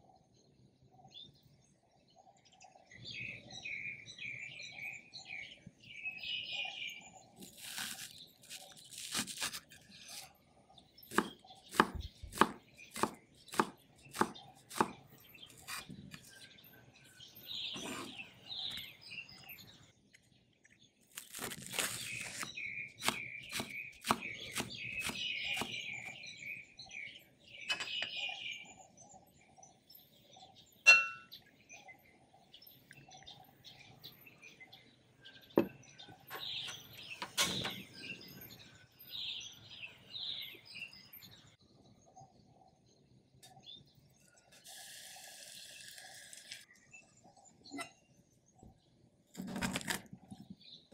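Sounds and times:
birds chirping: 0.0s - 49.3s, 50.1s - 50.9s
knife chopping on wooden board: 11.1s - 16.3s, 21.8s - 26.0s
sharp ringing clink: 30.9s - 31.4s.

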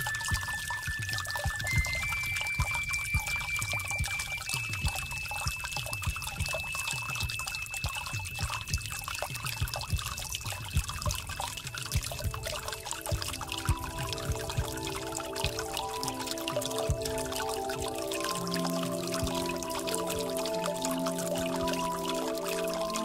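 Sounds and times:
thin high ringing tone: 0.0s - 9.6s, 12.5s - 23.0s
water pouring and trickling: 0.0s - 23.0s
soft musical notes: 12.1s - 23.0s.

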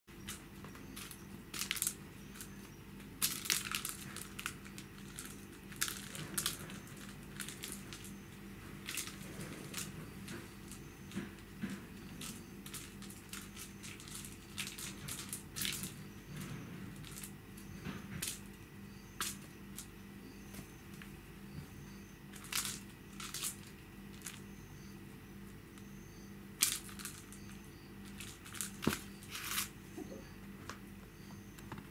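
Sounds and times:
faint steady hum: 0.1s - 31.9s
kitten scratching on hard floor: 26.6s - 29.8s.

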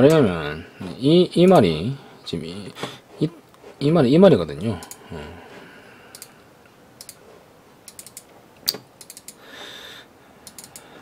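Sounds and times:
computer mouse clicks: 4.8s - 5.0s, 6.1s - 6.3s, 7.0s - 7.2s, 7.9s - 9.4s, 10.4s - 10.8s
keyboard clicks: 4.8s - 5.0s, 7.9s - 9.4s, 10.5s - 10.8s.

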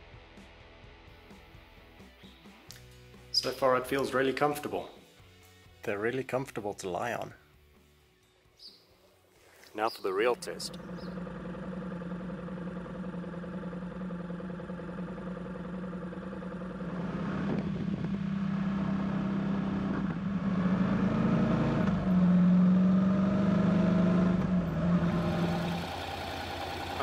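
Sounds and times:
motorcycle engine running: 10.2s - 27.0s.

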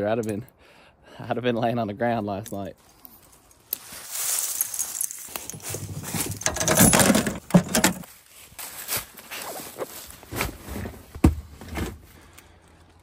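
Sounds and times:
rope leads rustling: 2.8s - 10.4s
metal clips clinking: 4.6s - 8.1s.

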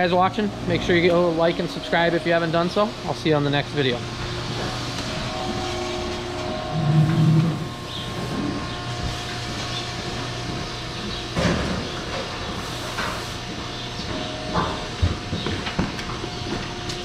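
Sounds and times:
barn machinery hum: 0.0s - 17.0s
cow mooing: 4.5s - 8.8s.

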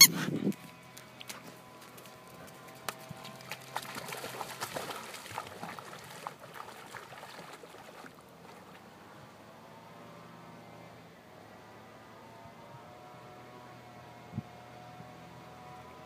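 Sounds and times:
dog splashing through water: 0.5s - 8.9s.

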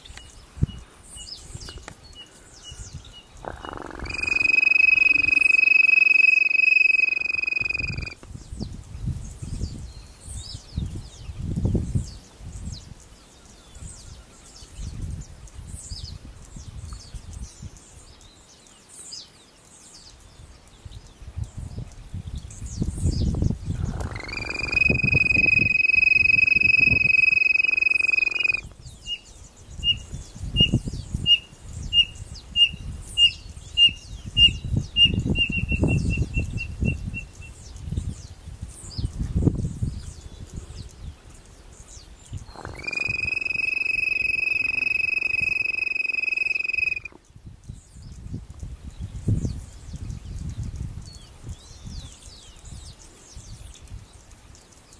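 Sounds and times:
bird whistling short notes: 3.6s - 8.2s, 23.9s - 28.6s, 42.5s - 47.1s
bird-call whistle long note: 4.0s - 8.2s, 23.9s - 28.6s, 42.6s - 47.1s.

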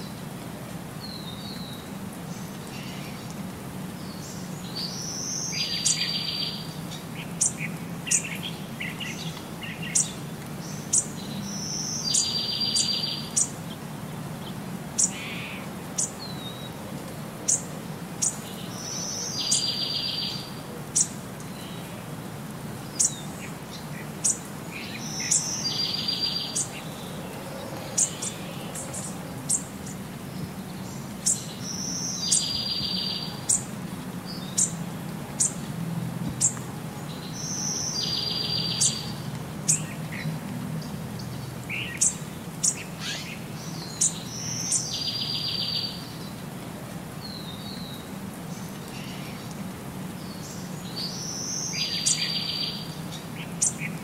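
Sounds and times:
birds chirping: 4.0s - 16.8s, 17.5s - 22.0s, 22.7s - 35.6s, 36.3s - 46.4s, 50.2s - 54.0s.

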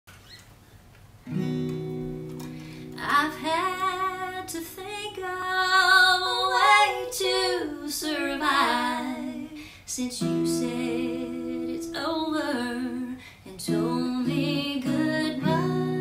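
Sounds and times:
acoustic guitar chords: 1.3s - 4.5s, 10.2s - 16.0s
women singing in harmony: 3.0s - 16.0s.

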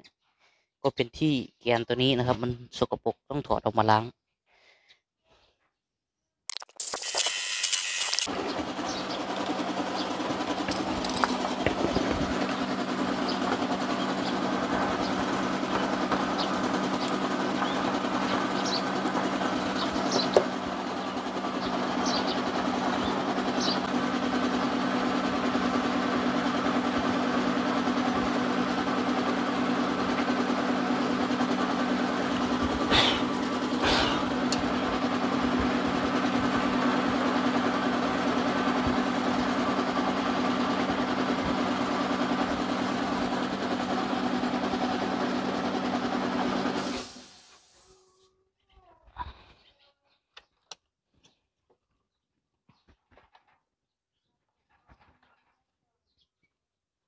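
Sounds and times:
low mechanical hum: 6.8s - 49.5s.

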